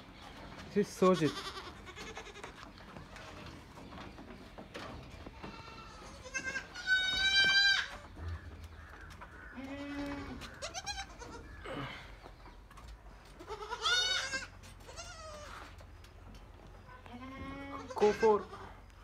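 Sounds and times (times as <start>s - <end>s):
goats bleating: 1.0s - 3.4s, 5.3s - 12.2s, 13.3s - 15.8s, 17.0s - 18.9s.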